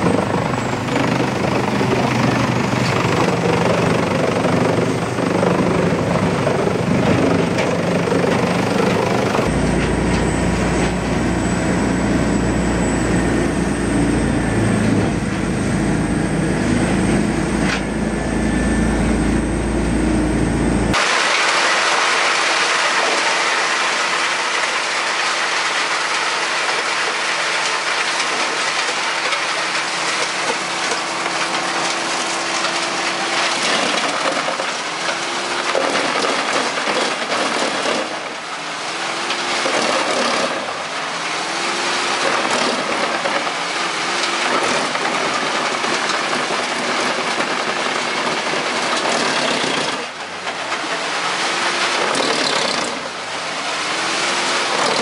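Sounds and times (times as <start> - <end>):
wood chipper chewing logs: 0.0 - 55.0.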